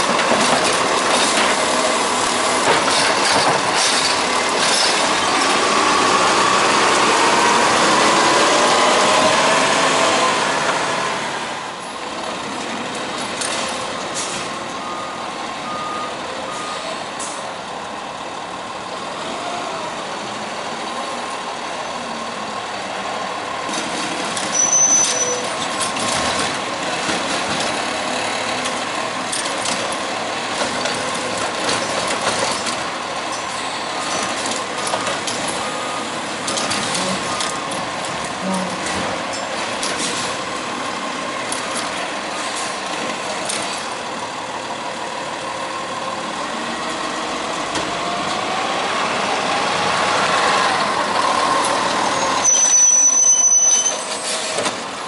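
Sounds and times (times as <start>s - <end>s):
garbage truck engine and hydraulics: 0.0s - 55.0s
high squeal: 24.5s - 25.6s, 52.0s - 54.6s
short beeps: 52.4s - 54.0s.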